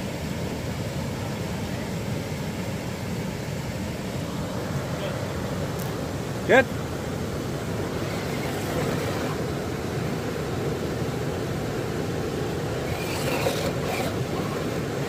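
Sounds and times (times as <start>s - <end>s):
river rapids rushing: 4.0s - 15.0s.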